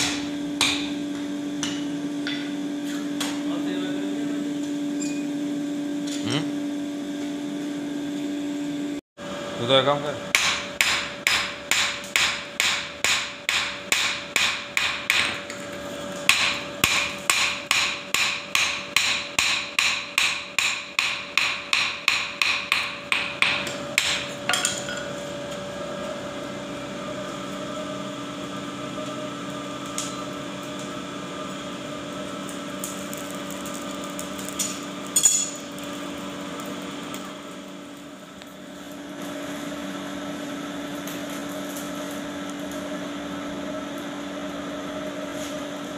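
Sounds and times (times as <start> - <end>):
hammer beating metal on anvil: 0.0 - 1.0, 10.3 - 15.4, 16.3 - 25.0.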